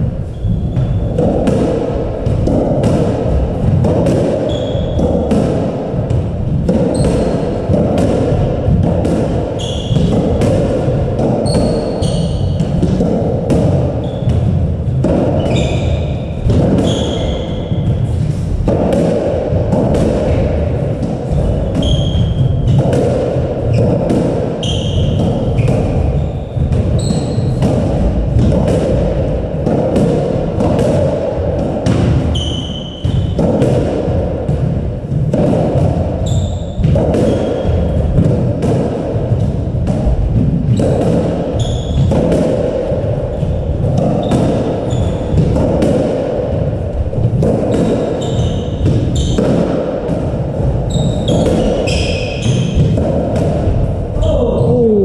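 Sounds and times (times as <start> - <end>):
squash ball smacking: 0.0 - 54.2
shoes squeaking on floorboards: 0.2 - 1.2, 4.4 - 5.0, 6.9 - 7.6, 9.6 - 10.2, 11.4 - 12.7, 14.0 - 14.6, 15.3 - 16.2, 16.8 - 18.2, 21.4 - 22.8, 24.6 - 27.6, 32.3 - 33.4, 36.2 - 37.9, 40.8 - 42.2, 44.2 - 45.5, 47.8 - 49.5, 50.8 - 52.9.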